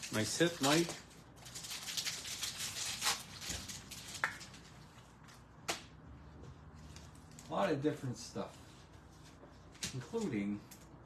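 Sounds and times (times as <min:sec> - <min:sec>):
foil wrapper tearing and crinkling: 0:00.0 - 0:04.6.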